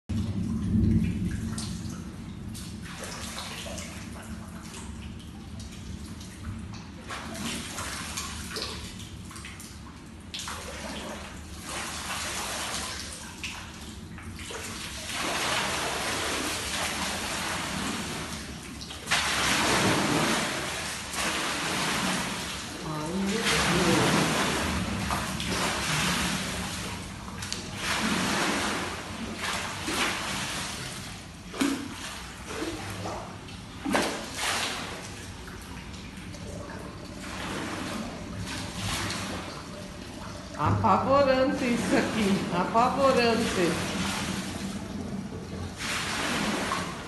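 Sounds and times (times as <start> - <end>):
water sloshing in a pool: 0.1 - 47.0.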